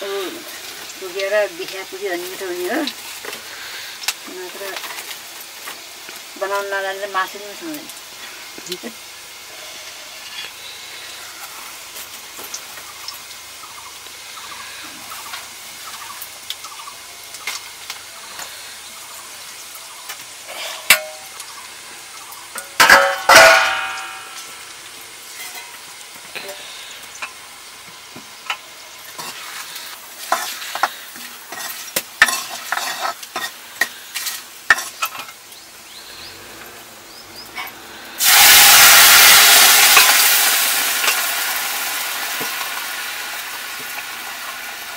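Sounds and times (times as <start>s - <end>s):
food frying in oil: 0.0s - 44.9s
liquid sizzling in hot oil: 0.0s - 44.9s
loud ringing metal clank: 22.6s - 24.5s
ladle scraping a wok: 25.3s - 27.4s, 28.5s - 35.4s.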